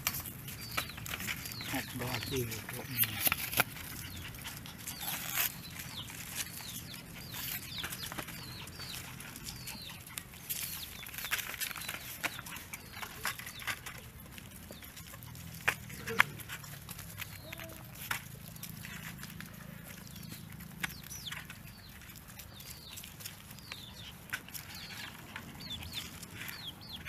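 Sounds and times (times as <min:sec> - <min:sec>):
chicks peeping: 0:00.1 - 0:27.0.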